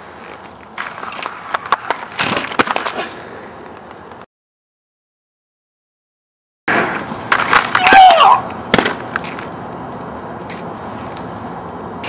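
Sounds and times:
inline skates rolling: 0:00.0 - 0:04.3, 0:06.7 - 0:12.0
skates clacking on net: 0:00.1 - 0:04.0, 0:06.7 - 0:09.6.

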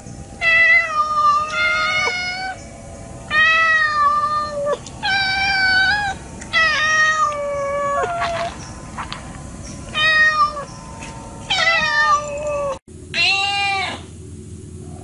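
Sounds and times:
kitten meowing: 0:11.5 - 0:14.0.

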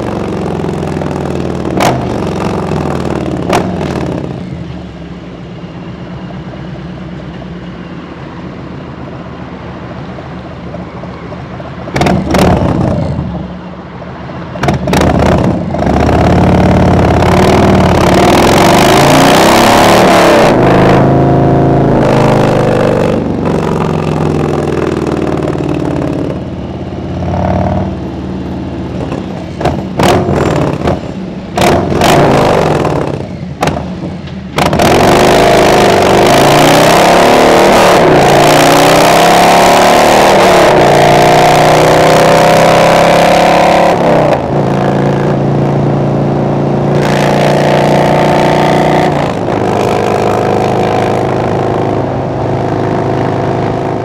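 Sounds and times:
motorcycle engine accelerating: 0:00.0 - 0:04.6, 0:11.9 - 0:13.5, 0:14.6 - 0:54.0.

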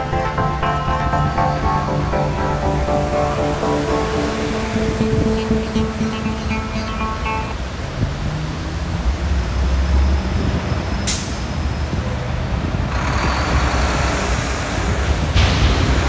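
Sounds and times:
heavy vehicle engines rumbling: 0:00.0 - 0:16.0
hiss of passing traffic: 0:07.6 - 0:16.0.

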